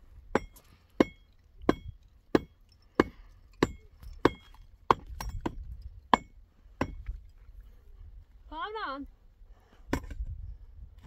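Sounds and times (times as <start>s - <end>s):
hammer striking concrete blocks: 0.3s - 7.2s.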